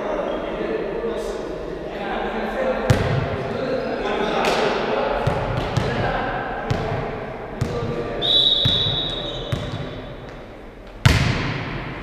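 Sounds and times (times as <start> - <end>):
players' voices: 0.0 - 10.1
volleyball hits echoing: 2.9 - 3.4, 4.4 - 12.0
high whistle blast: 8.2 - 9.5.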